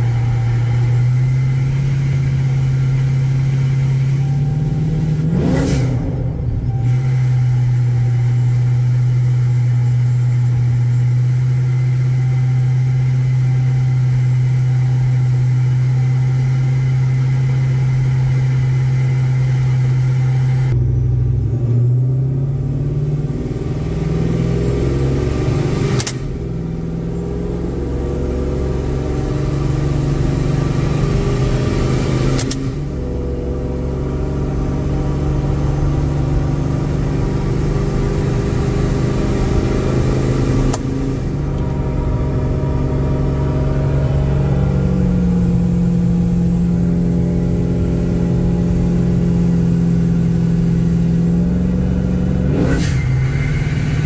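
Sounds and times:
engine droning inside cab: 0:00.0 - 0:54.0
sharp click: 0:25.9 - 0:26.4, 0:32.4 - 0:32.8, 0:40.7 - 0:40.9.

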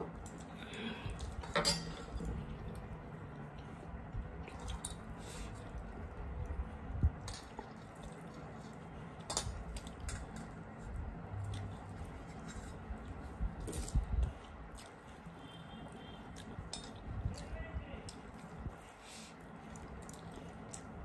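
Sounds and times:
fingers squelching food on plates: 0:07.2 - 0:21.0.

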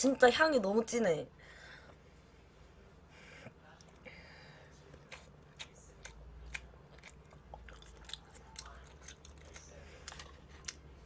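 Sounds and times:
person chewing noodles: 0:04.8 - 0:11.0.

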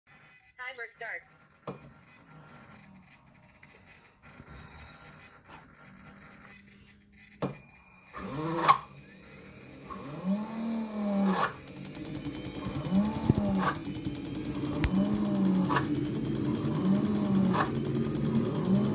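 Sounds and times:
turbine starter whine: 0:01.5 - 0:18.9
thin steady high whine: 0:03.5 - 0:16.4.

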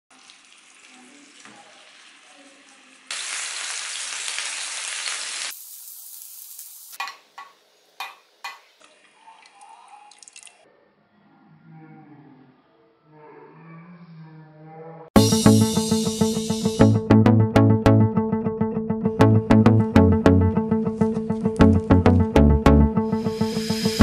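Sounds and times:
oil sizzling in a frying pan: 0:00.1 - 0:08.8
cooking utensil knocks: 0:07.0 - 0:08.7.

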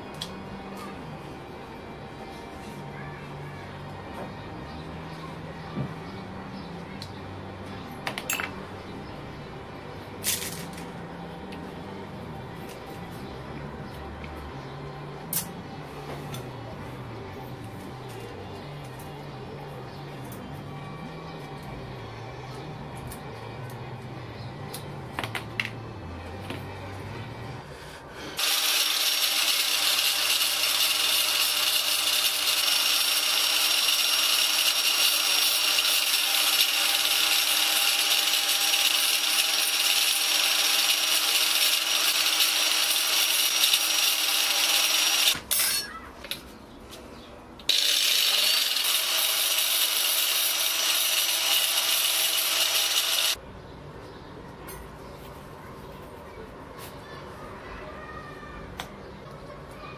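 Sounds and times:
metal grinding hiss: 0:28.3 - 0:45.8, 0:47.7 - 0:53.4
electric grinder motor whine: 0:28.4 - 0:45.4, 0:47.7 - 0:53.4.

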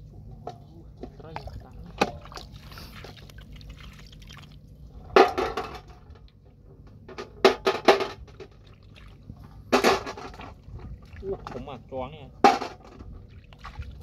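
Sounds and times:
hands squelching in wet mud: 0:01.4 - 0:04.6, 0:13.2 - 0:14.0.

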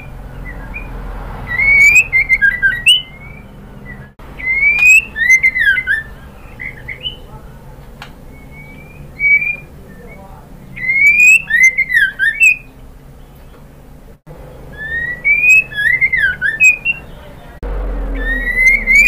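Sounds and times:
bird rising whistles and notes: 0:00.0 - 0:07.3, 0:08.3 - 0:10.2, 0:10.8 - 0:12.7, 0:14.7 - 0:17.2, 0:18.1 - 0:19.0.

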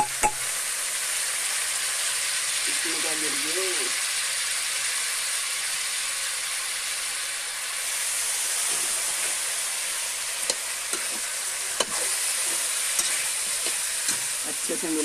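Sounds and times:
spoon knocking against pan: 0:00.0 - 0:00.4
meat sizzling in hot oil: 0:00.0 - 0:15.0.

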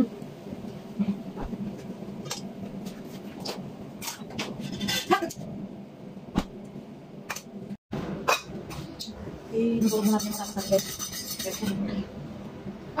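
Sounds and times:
metal utensils clicking and knocking: 0:09.8 - 0:11.9.

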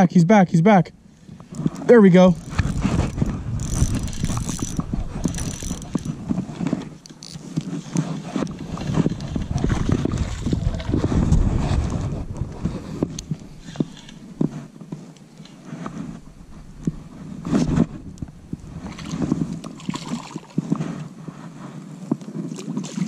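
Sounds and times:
low rumble: 0:00.9 - 0:06.6, 0:08.8 - 0:14.5, 0:15.9 - 0:19.7
fishing reel clicking and ratcheting: 0:01.5 - 0:06.2, 0:07.0 - 0:07.4.

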